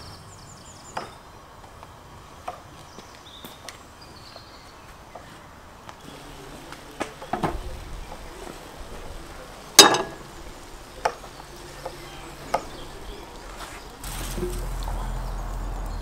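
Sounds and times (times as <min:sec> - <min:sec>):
metal bowl clanging on stove: 0:09.8 - 0:10.4.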